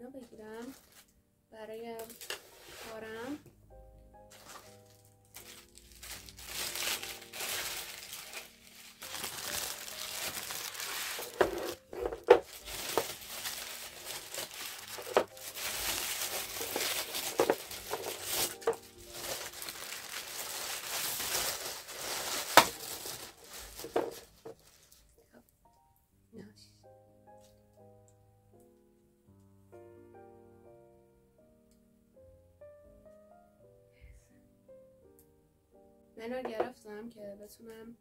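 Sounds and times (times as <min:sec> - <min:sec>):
wrapping paper crinkling: 0:00.4 - 0:01.2, 0:02.0 - 0:03.4, 0:04.2 - 0:25.2.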